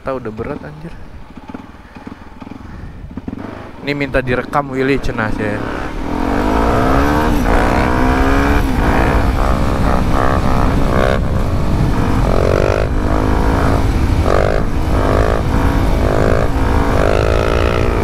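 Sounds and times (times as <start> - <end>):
motorcycle engine revving: 0.3 - 18.0
wind rumble on microphone: 5.8 - 18.0.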